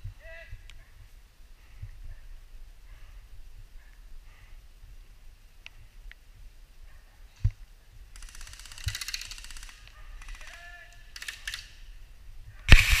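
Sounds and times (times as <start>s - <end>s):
airsoft guns firing bursts: 8.1s - 11.8s, 12.7s - 13.0s.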